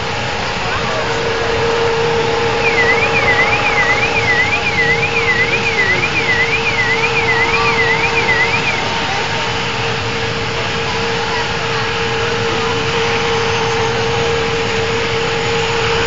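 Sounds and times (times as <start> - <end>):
helicopter engines running: 0.0 - 16.0
high warbling tone: 0.1 - 9.0.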